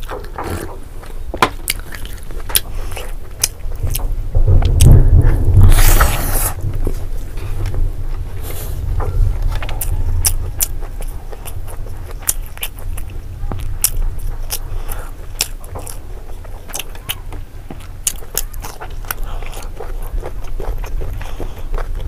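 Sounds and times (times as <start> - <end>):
chewing and biting food: 0.0 - 4.1, 9.0 - 22.0
steady low hum: 0.0 - 22.0.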